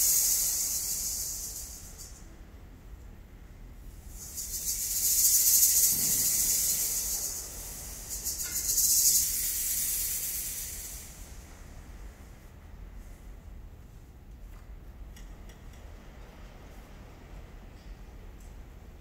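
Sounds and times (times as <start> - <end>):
band soft hissing rustling effect: 0.0 - 2.6, 3.7 - 14.5.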